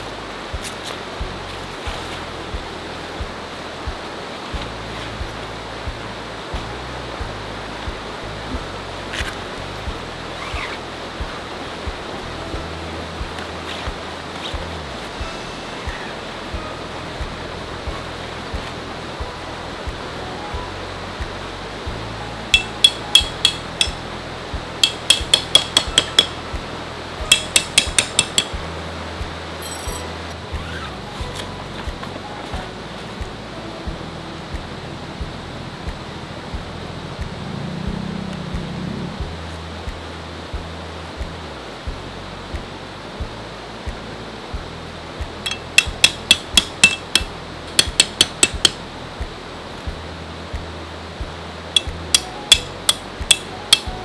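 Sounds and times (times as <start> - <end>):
hammer striking metal stakes: 22.5 - 24.0, 24.8 - 26.4, 27.2 - 28.6, 45.5 - 48.8, 51.8 - 53.9.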